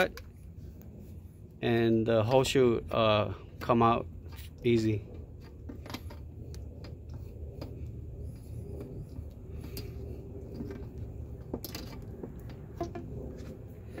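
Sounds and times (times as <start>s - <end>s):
low steady hum: 0.0s - 14.0s
rubber hose creaking and clicking: 4.2s - 14.0s.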